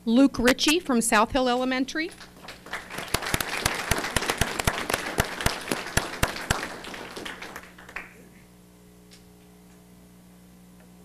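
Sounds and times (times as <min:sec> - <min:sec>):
low mains hum: 0:00.0 - 0:11.0
sharp close hand claps: 0:02.2 - 0:08.4
audience applause: 0:02.3 - 0:08.3.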